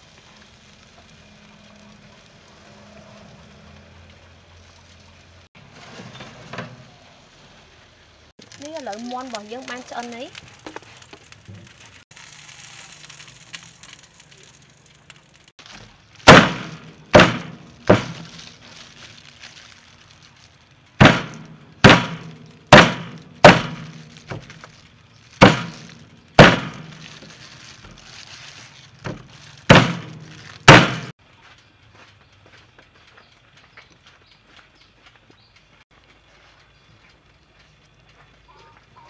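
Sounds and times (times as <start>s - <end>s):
cleaver chopping on wooden block: 16.3s - 18.2s, 21.0s - 24.4s.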